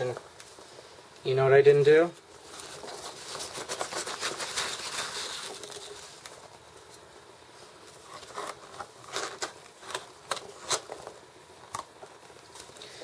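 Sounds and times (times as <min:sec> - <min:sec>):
packing peanuts rustling and squeaking: 0:02.4 - 0:06.5.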